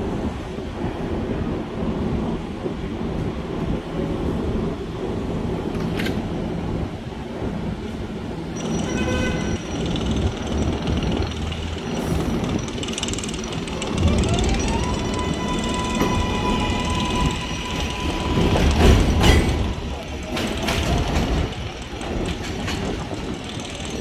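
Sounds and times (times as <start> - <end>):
subway train rumbling: 0.0 - 24.0
train propulsion whine: 8.4 - 24.0.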